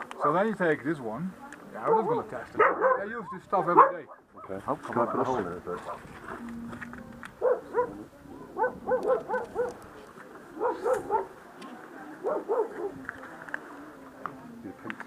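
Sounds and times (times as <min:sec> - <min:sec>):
dog barking: 0:01.9 - 0:06.1, 0:07.4 - 0:09.8, 0:10.6 - 0:11.4, 0:12.2 - 0:13.0.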